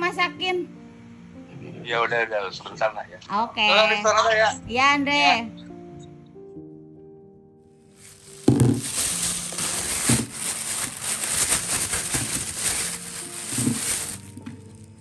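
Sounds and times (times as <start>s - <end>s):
plastic bag crinkling: 8.0s - 15.0s
dull knocks of fish landing: 8.5s - 9.1s.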